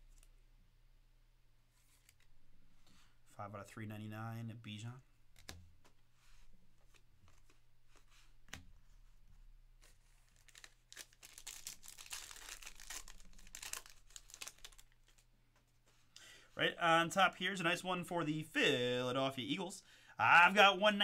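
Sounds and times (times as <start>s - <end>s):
cards clicking: 5.4s - 6.0s
foil pack tearing and crinkling: 9.8s - 15.2s.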